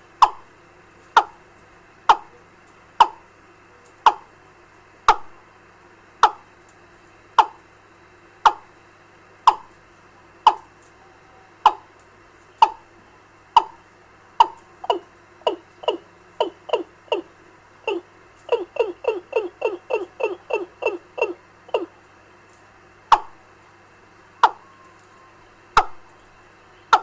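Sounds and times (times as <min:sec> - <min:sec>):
bird lure call through speaker: 0:14.4 - 0:22.0.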